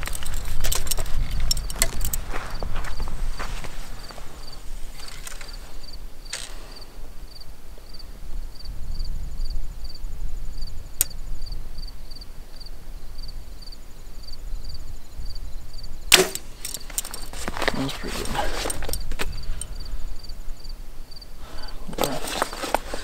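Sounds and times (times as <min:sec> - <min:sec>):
insect chirping: 0:00.0 - 0:23.0
low wind rumble: 0:00.0 - 0:23.0.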